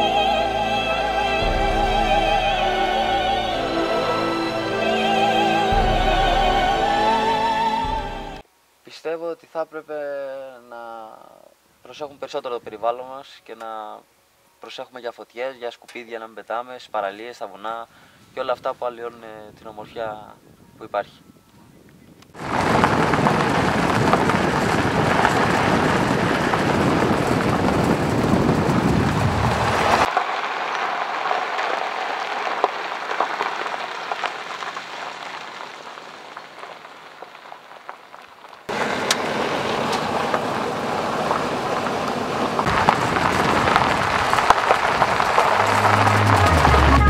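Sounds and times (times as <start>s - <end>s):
wind on microphone: 19.5s - 30.1s, 42.6s - 47.0s
tyres on gravel road: 22.4s - 47.0s.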